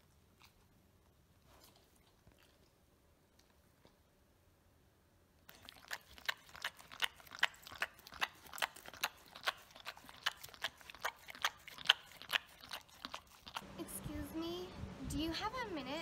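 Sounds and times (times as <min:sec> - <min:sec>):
dog eating from plastic lid: 0:05.5 - 0:13.6.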